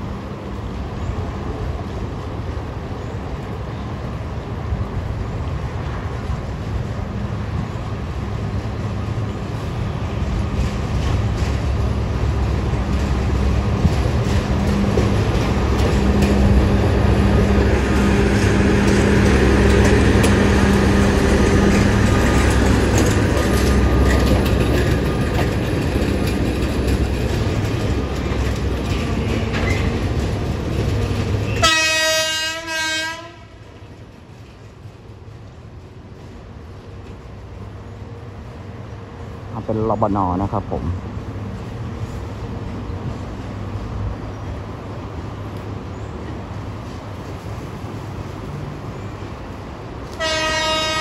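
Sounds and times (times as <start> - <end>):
wheels clattering over rail joints: 5.1 - 32.4
train horn blast: 31.6 - 33.6, 50.1 - 51.0.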